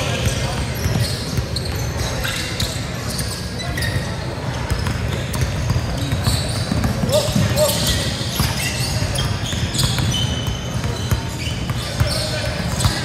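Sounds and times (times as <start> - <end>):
basketball bouncing: 4.7 - 7.7, 9.5 - 13.0.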